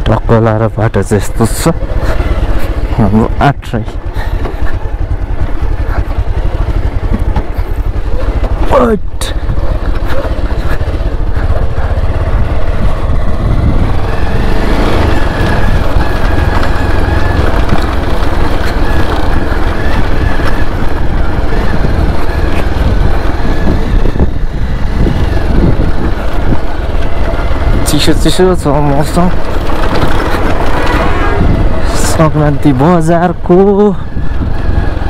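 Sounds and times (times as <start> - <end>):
motorcycle engine running: 0.0 - 35.0
wind rumble on microphone: 1.3 - 35.0.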